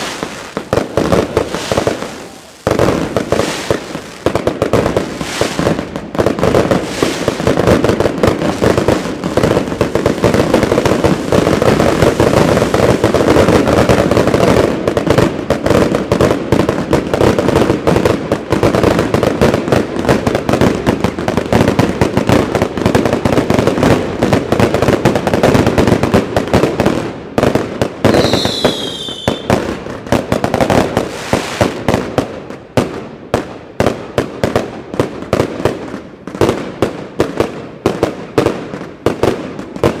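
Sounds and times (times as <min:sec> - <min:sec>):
whistling firework: 0:00.0 - 0:18.2, 0:24.6 - 0:32.3
fireworks bangs and crackles: 0:00.0 - 0:40.0.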